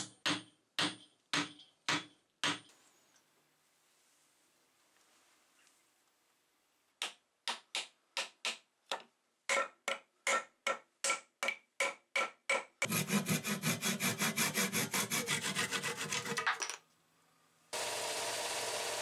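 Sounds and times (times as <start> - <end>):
mallet tapping wooden wedge: 7.0 - 12.8
hand saw cutting wood: 12.8 - 16.5.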